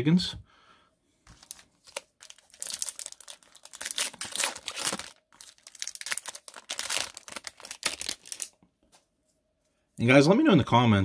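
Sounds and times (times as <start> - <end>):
foil wrapper crinkling: 1.3 - 8.6.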